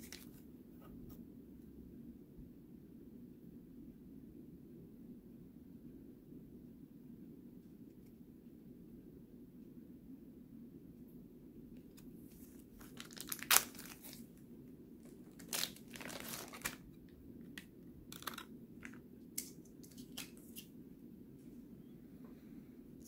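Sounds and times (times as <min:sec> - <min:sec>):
card wrappers crinkling and tearing: 0:00.0 - 0:00.4, 0:11.9 - 0:14.3, 0:15.0 - 0:16.9, 0:17.5 - 0:20.7.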